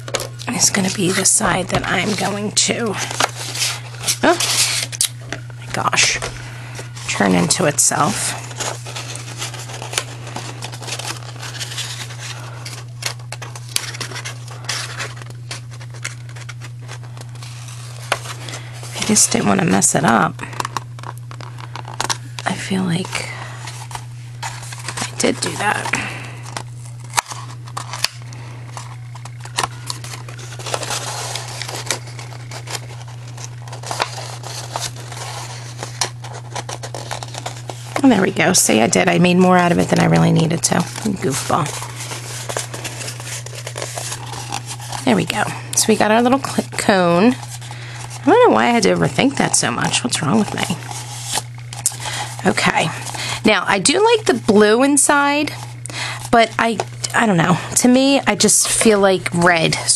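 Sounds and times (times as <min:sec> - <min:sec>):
paper rustling and crinkling: 0:00.0 - 0:59.9
steady low hum: 0:00.0 - 0:59.9.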